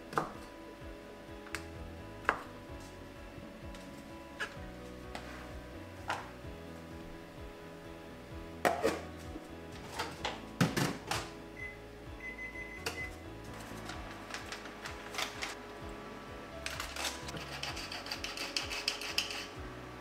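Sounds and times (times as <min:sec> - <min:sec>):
soft background music: 0:00.0 - 0:20.0
utensils and dishes clicking: 0:16.7 - 0:19.6.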